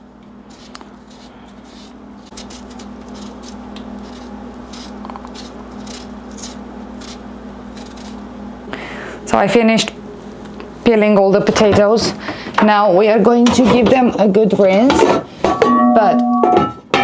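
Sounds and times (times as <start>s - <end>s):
knife scraping potato skin: 0.5s - 8.2s.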